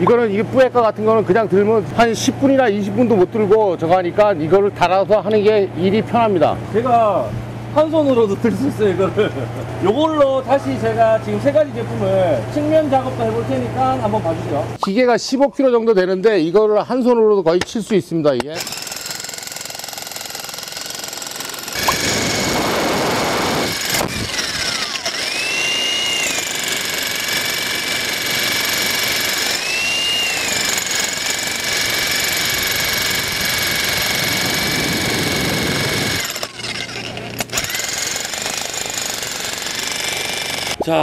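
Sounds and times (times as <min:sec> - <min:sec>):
demolition breaker hammering concrete: 0:18.6 - 0:25.3, 0:26.1 - 0:36.9.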